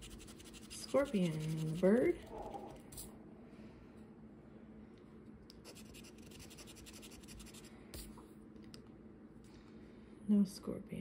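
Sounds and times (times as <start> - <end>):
scratching lottery ticket: 0.0 - 3.0, 5.6 - 7.7.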